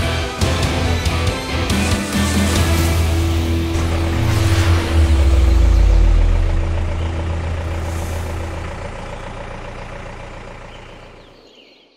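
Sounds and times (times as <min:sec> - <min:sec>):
deep pulsing engine rumble: 0:03.2 - 0:11.4
steady low tone: 0:03.4 - 0:10.8.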